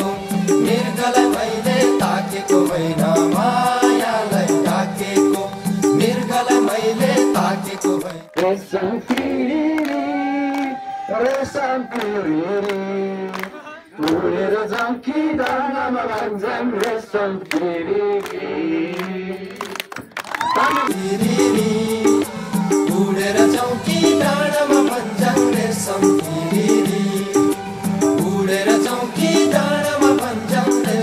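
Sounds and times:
rhythmic accompaniment: 0.0s - 10.0s, 20.9s - 31.0s
group of voices singing: 0.0s - 19.9s, 20.6s - 31.0s.

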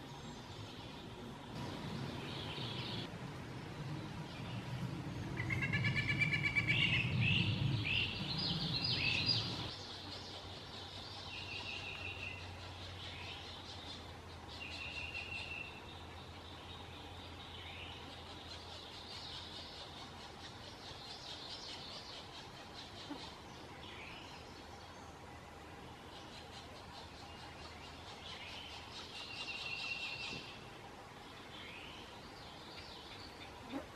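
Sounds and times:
low rumble: 1.6s - 9.7s.

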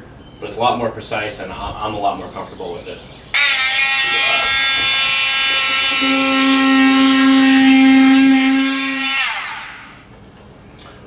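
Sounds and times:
low buzz: 3.4s - 10.1s
oscillating multi-tool whine: 3.4s - 10.1s
power tool winding down: 3.4s - 10.1s.

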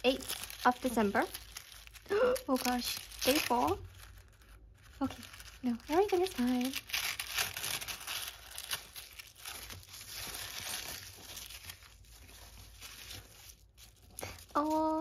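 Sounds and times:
tissue paper rustling: 0.0s - 15.0s.

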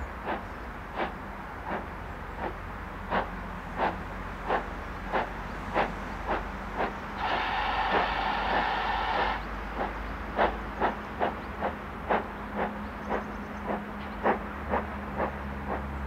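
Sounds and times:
steam locomotive chuffing: 0.0s - 16.0s
steam whistle: 7.2s - 9.4s.

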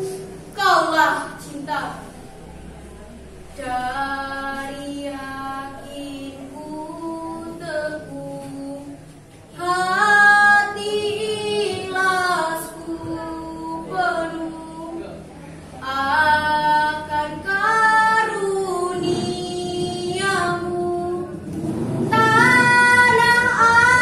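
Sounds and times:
girl singing unaccompanied: 3.5s - 15.0s, 15.8s - 21.4s, 22.1s - 24.0s.

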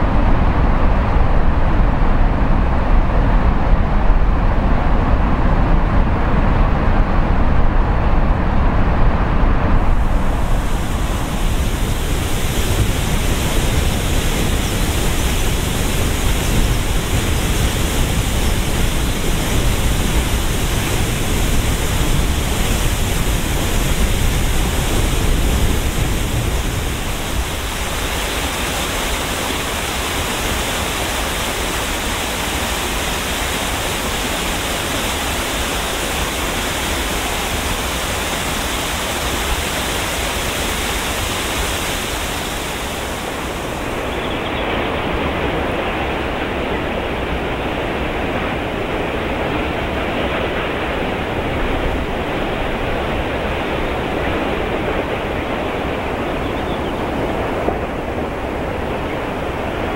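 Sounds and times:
waterfall rumbling: 0.0s - 59.9s
cascade splashing over boulders: 10.0s - 43.9s.

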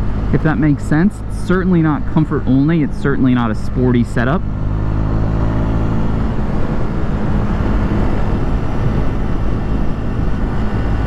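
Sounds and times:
motorcycle engine cruising: 0.0s - 11.0s
wind noise: 4.4s - 11.0s.

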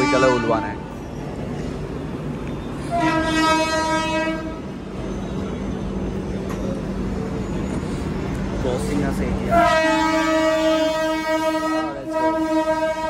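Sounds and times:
locomotive horn blast: 0.0s - 0.9s, 2.8s - 4.8s, 9.4s - 13.0s.

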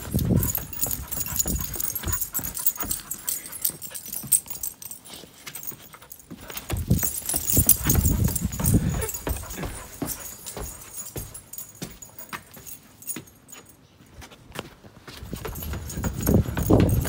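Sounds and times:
paw thuds and scuffs on dirt: 0.0s - 4.6s, 6.3s - 12.8s, 14.6s - 17.0s
dogs playing noises: 0.0s - 17.0s.

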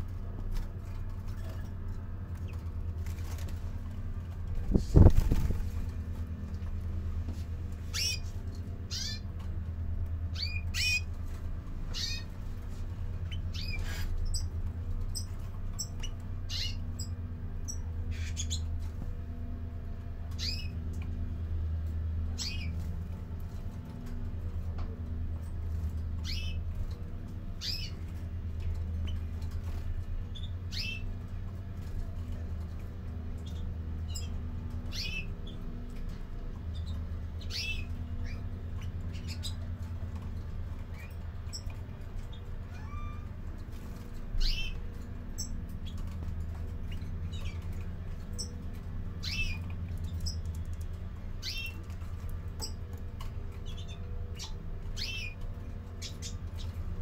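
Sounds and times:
steady low hum: 0.0s - 57.0s
finches chirping: 7.9s - 8.2s, 8.9s - 9.3s, 10.3s - 11.1s, 11.9s - 12.3s, 13.3s - 14.5s, 15.1s - 18.7s, 20.4s - 20.8s, 22.4s - 22.8s, 26.2s - 26.7s, 27.6s - 28.0s, 30.2s - 31.1s, 33.4s - 35.6s, 36.7s - 39.7s, 44.3s - 46.1s, 46.7s - 50.6s, 51.4s - 51.9s, 53.6s - 56.8s.

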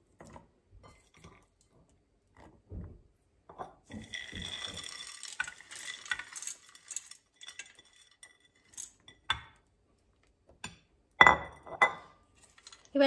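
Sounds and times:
nuts rattling into steel jar: 3.9s - 9.2s, 12.4s - 13.0s.

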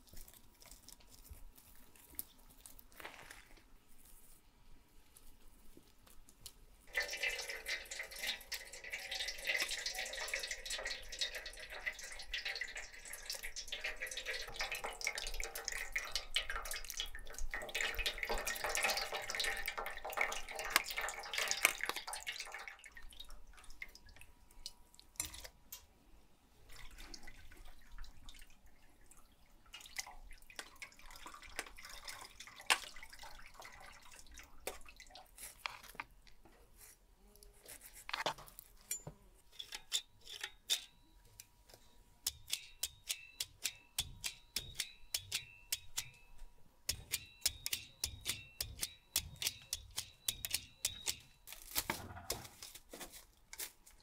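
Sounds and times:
juice squishing through strainer: 0.0s - 4.4s, 5.9s - 25.9s, 26.6s - 36.4s
juice dripping into steel bowl: 6.0s - 25.9s, 26.7s - 36.4s, 38.8s - 41.0s, 42.2s - 52.7s.

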